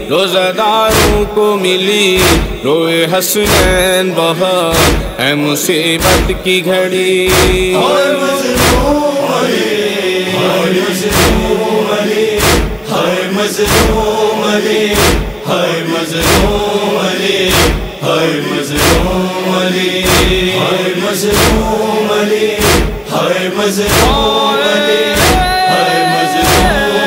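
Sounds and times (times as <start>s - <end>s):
men chanting: 0.0s - 27.0s
chest-beating thumps: 0.9s - 1.3s, 2.2s - 2.6s, 3.5s - 3.9s, 4.7s - 5.2s, 6.0s - 6.5s, 7.3s - 7.8s, 8.6s - 9.0s, 11.0s - 11.6s, 12.4s - 12.9s, 13.6s - 14.1s, 14.9s - 15.4s, 16.2s - 16.7s, 17.5s - 18.0s, 18.8s - 19.2s, 20.0s - 20.6s, 21.2s - 21.8s, 22.6s - 23.1s, 23.8s - 24.4s, 25.1s - 25.6s, 26.4s - 26.9s.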